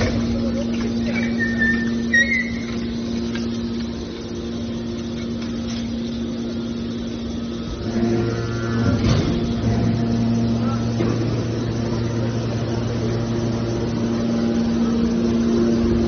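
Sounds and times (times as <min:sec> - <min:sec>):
baler motor and pump hum: 0:00.0 - 0:16.0
high squeak: 0:01.1 - 0:02.9.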